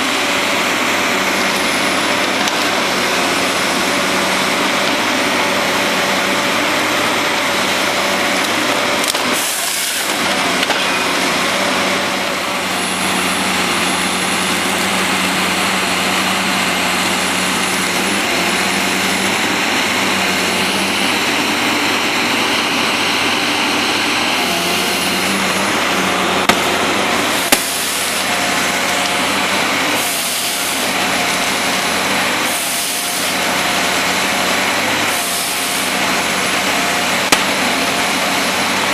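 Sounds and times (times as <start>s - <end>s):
harvester engine and hydraulics: 0.0s - 38.9s.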